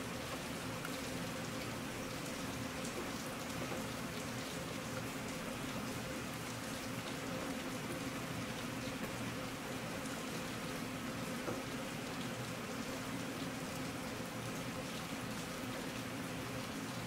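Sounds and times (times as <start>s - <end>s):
steady rain falling: 0.0s - 17.0s.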